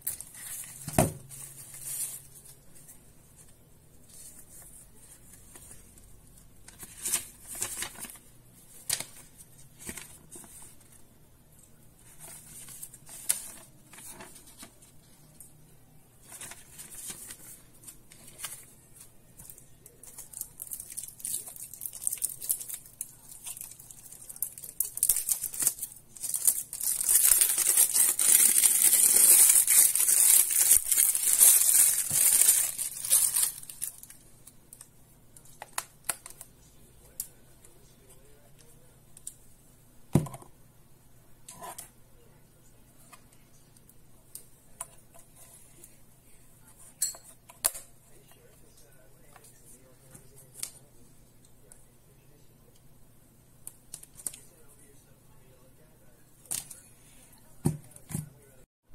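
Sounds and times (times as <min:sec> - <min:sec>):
paper rustling: 0:00.0 - 0:06.0, 0:06.7 - 0:11.0, 0:12.0 - 0:15.3, 0:16.2 - 0:20.8, 0:24.3 - 0:34.2
packaging tearing: 0:24.4 - 0:34.0.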